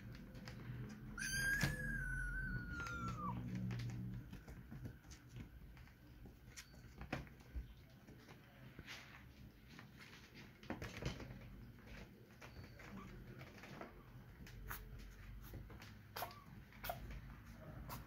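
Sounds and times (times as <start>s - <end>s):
kitten paws on wooden floor: 0.0s - 18.0s
kitten meowing: 1.2s - 3.6s.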